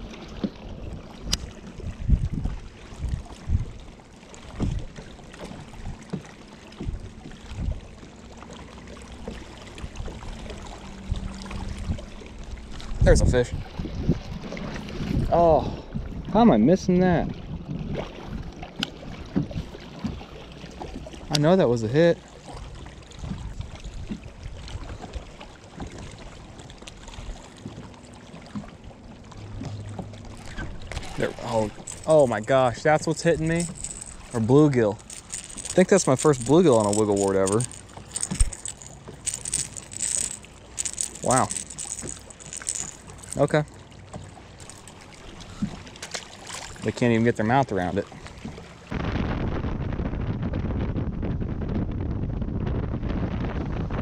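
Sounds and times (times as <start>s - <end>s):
choppy lake water: 0.0s - 54.0s
waves lapping against hull: 0.0s - 54.0s
wind buffeting microphone: 1.8s - 3.9s, 11.0s - 16.4s.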